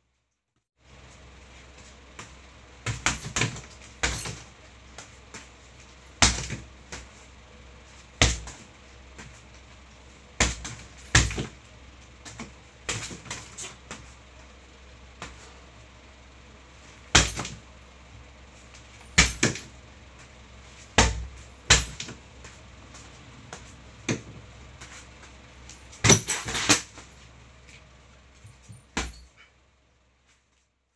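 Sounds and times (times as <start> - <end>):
low hum: 0.8 - 30.1
gloves punching heavy bag: 6.1 - 7.2, 8.2 - 8.7, 10.4 - 11.6, 17.1 - 17.6, 19.1 - 19.8, 20.9 - 22.2, 25.9 - 27.0.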